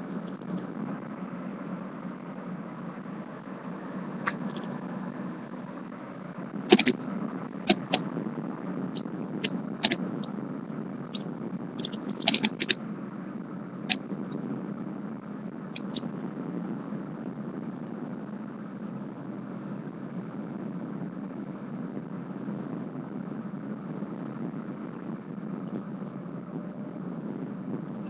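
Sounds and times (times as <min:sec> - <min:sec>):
car road and engine noise: 0:00.0 - 0:28.0
sharp clicks and knocks: 0:06.7 - 0:07.0, 0:07.7 - 0:08.1, 0:09.4 - 0:10.3, 0:11.2 - 0:12.8.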